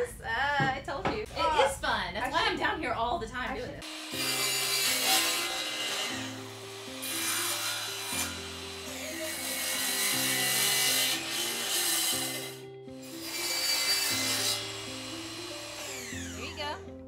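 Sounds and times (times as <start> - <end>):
miter saw cutting wood: 3.8 - 16.8.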